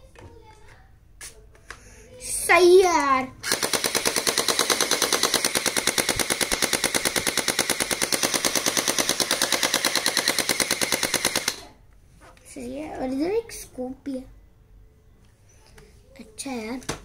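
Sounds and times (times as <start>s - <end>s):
toy blaster rapid rattle: 3.4s - 11.8s.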